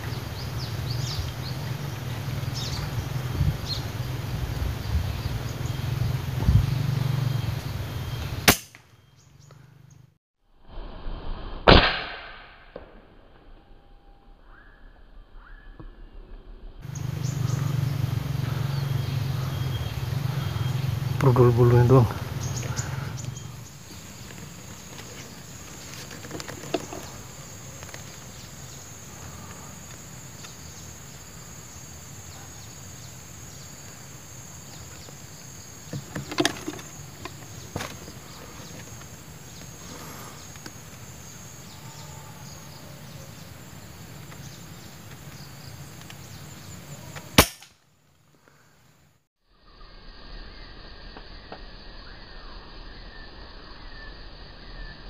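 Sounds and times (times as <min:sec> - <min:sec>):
insect drone: 0:00.0 - 0:55.0
air rifle shot: 0:08.4 - 0:08.8, 0:11.4 - 0:13.2, 0:47.4 - 0:47.8.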